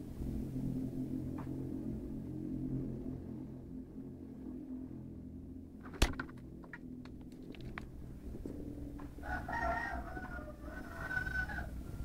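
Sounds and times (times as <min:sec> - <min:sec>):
rooster crowing: 0:09.2 - 0:12.0.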